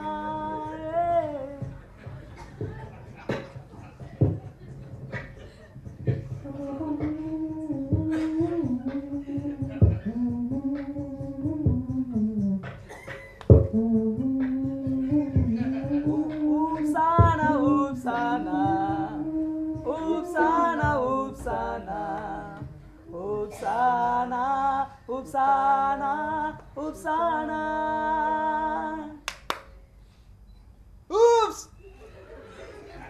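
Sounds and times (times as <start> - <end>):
person singing unaccompanied: 0.0 - 2.0, 6.1 - 12.9, 13.5 - 29.2.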